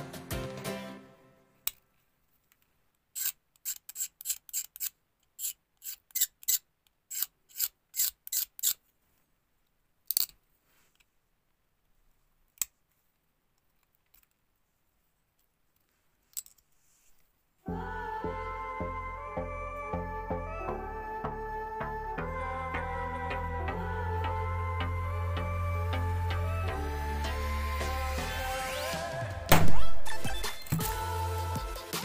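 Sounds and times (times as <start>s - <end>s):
blade scraping resin: 3.2s - 8.8s.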